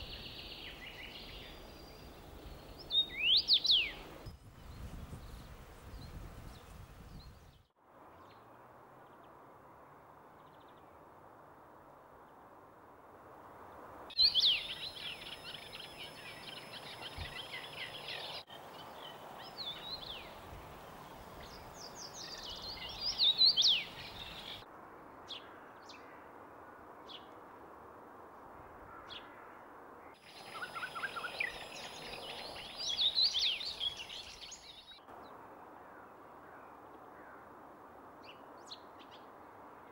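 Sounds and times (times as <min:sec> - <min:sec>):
bird singing whistled notes: 0:00.0 - 0:05.4, 0:14.2 - 0:20.4, 0:21.4 - 0:24.6, 0:30.3 - 0:35.0
outdoor background hiss: 0:00.0 - 0:39.9.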